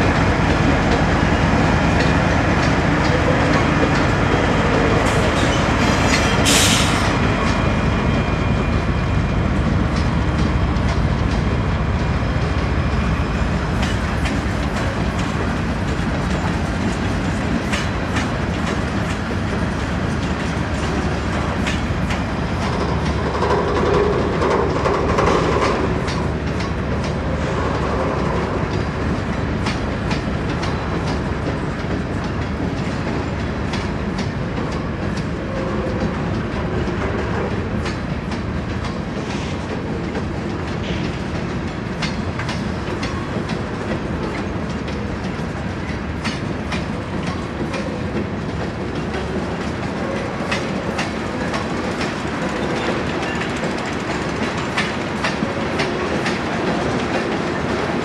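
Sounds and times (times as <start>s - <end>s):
freight train rumbling: 0.0s - 58.0s
wheels clicking over rail joints: 13.7s - 58.0s.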